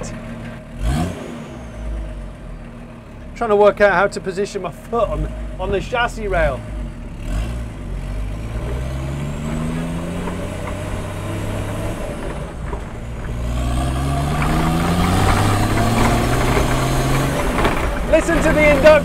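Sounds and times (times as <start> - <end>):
car engine accelerating: 0.0 - 19.0.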